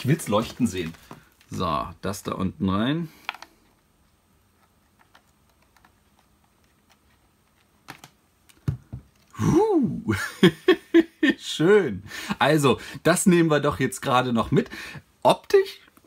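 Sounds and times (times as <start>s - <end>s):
person speaking: 0.0s - 3.7s, 9.2s - 16.0s
cable clicks and taps: 3.2s - 3.5s, 4.6s - 9.3s.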